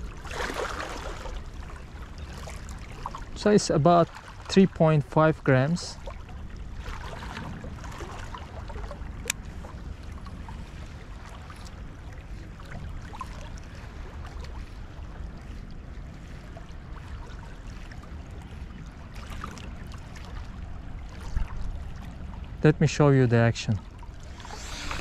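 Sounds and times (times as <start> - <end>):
small waves lapping on rocks: 0.0 - 1.4, 23.0 - 25.0
wind buffeting microphone: 6.4 - 11.2.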